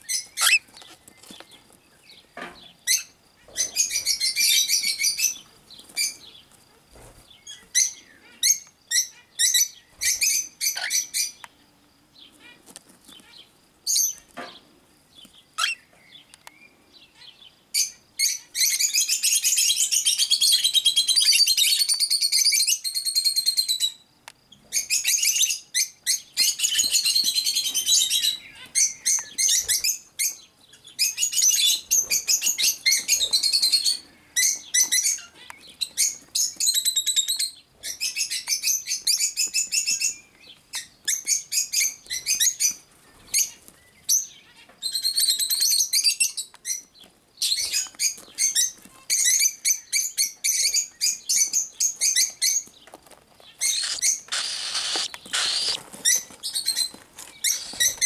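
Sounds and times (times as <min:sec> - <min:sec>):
cockatiel chicks chirping: 0:00.0 - 0:01.6, 0:15.6 - 0:23.0, 0:24.7 - 0:58.0.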